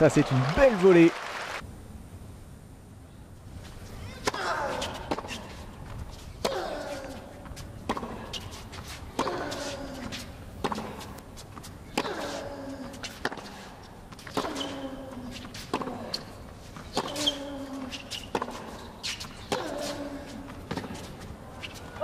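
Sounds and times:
racket striking tennis ball: 0:09.1 - 0:10.0.

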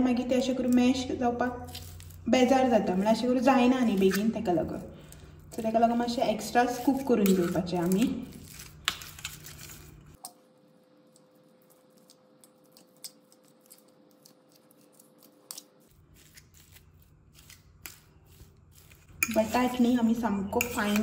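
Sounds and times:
fork mashing potatoes: 0:06.4 - 0:10.4, 0:11.6 - 0:21.0
fork tines scraping metal plate: 0:18.7 - 0:21.0.

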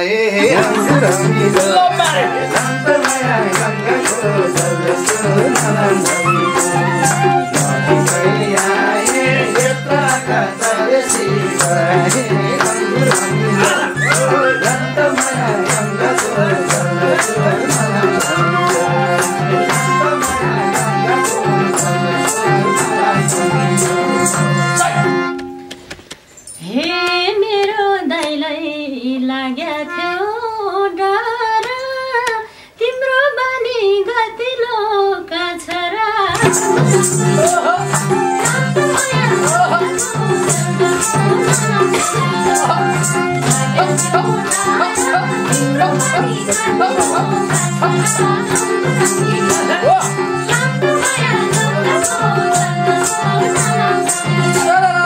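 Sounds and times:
harmonium: 0:00.0 - 0:26.0, 0:36.3 - 0:55.0
woman singing: 0:00.3 - 0:22.8, 0:26.6 - 0:55.0
drum beat: 0:36.4 - 0:38.2.

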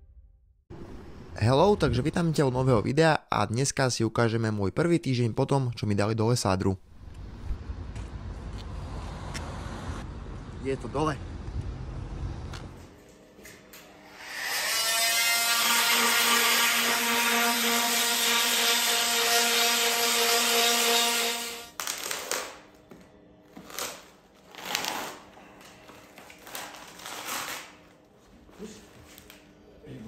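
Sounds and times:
cast saw whining and cutting: 0:13.9 - 0:21.7.

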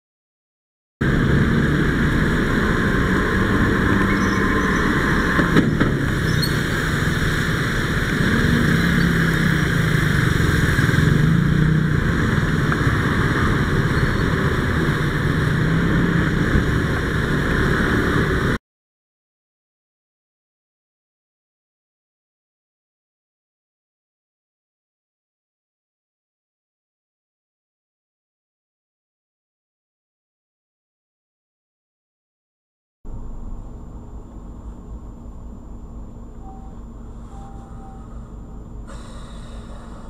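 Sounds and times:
car engine humming: 0:01.0 - 0:18.6, 0:35.9 - 0:40.0
road noise: 0:01.0 - 0:18.6, 0:33.1 - 0:40.0.

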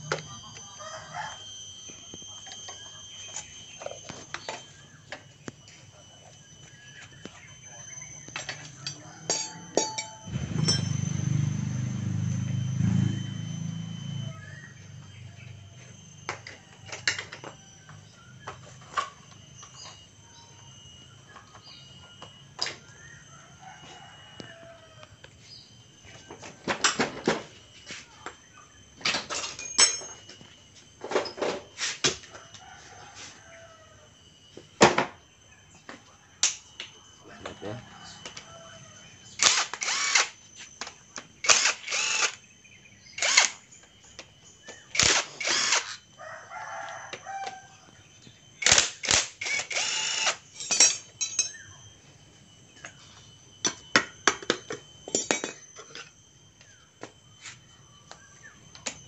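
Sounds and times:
metal tools knocking and clinking: 0:08.4 - 0:10.9, 0:29.1 - 0:30.2, 0:50.6 - 0:51.6, 0:53.6 - 0:56.1
impact driver bursts: 0:39.4 - 0:40.4, 0:41.4 - 0:42.4, 0:43.2 - 0:43.6, 0:44.9 - 0:46.0, 0:48.6 - 0:50.5.

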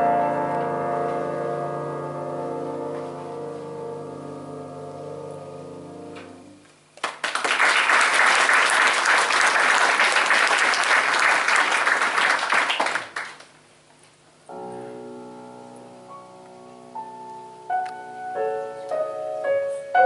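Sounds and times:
grand piano chords: 0:00.0 - 0:07.0, 0:14.4 - 0:20.0
audience applauding: 0:07.0 - 0:13.5.

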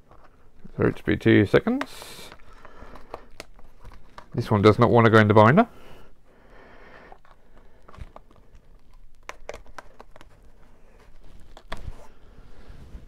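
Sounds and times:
plastic binder page crinkling: 0:02.2 - 0:04.8, 0:07.1 - 0:12.2
soft rustle: 0:10.1 - 0:13.0.

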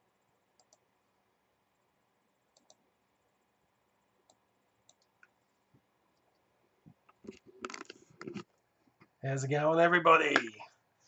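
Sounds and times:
computer mouse clicks: 0:00.5 - 0:00.8, 0:02.5 - 0:02.8, 0:04.2 - 0:05.4.

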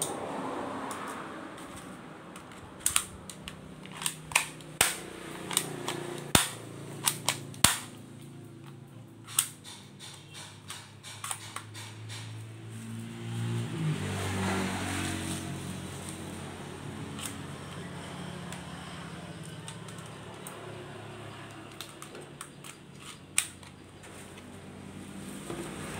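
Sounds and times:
toy pistol plastic clicks: 0:02.4 - 0:08.0, 0:19.3 - 0:20.8, 0:21.4 - 0:23.8.

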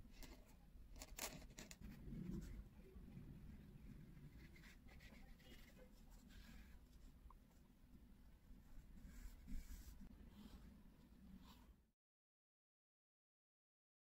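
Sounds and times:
brush strokes on paper: 0:03.8 - 0:07.7, 0:08.6 - 0:11.8.

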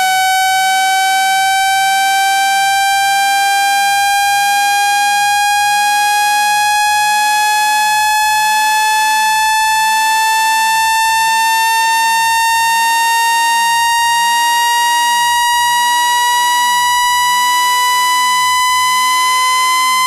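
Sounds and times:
buzzy rising synthetic tone: 0:11.9 - 0:20.0.

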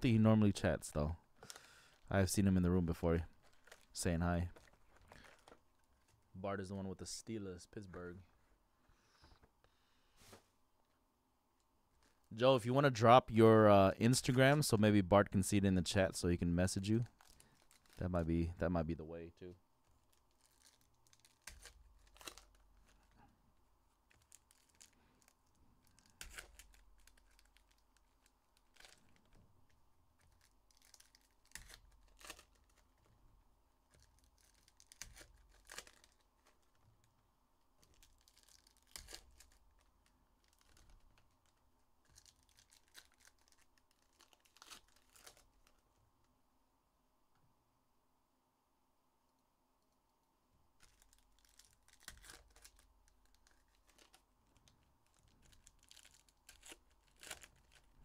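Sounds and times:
foil wrappers tearing and crinkling: 0:03.3 - 0:04.0, 0:17.0 - 0:18.0, 0:20.0 - 0:23.2, 0:24.0 - 0:29.4, 0:30.2 - 0:33.1, 0:33.9 - 0:36.8, 0:37.8 - 0:45.8, 0:50.8 - 0:54.3, 0:55.0 - 0:58.0.

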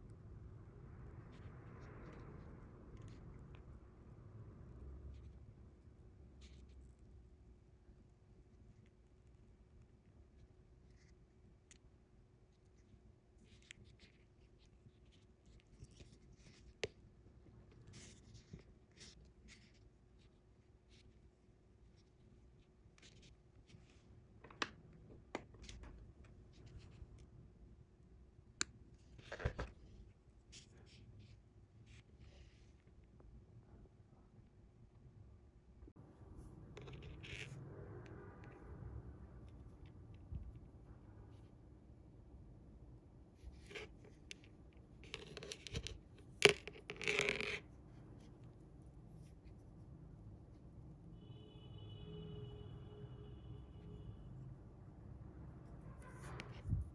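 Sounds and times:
fishing line rustling and scraping: 0:17.7 - 0:20.3, 0:36.2 - 0:42.0, 0:43.3 - 0:50.8, 0:53.6 - 0:56.9.

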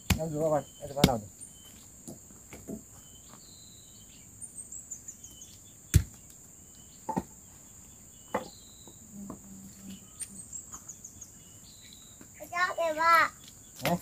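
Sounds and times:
machete striking a tree stump: 0:00.0 - 0:00.4, 0:01.0 - 0:01.2, 0:05.9 - 0:06.2
crickets droning: 0:00.0 - 0:14.0.

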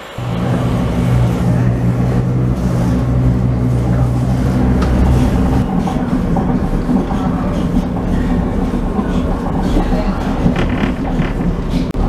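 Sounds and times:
metro train running: 0:00.0 - 0:12.0.

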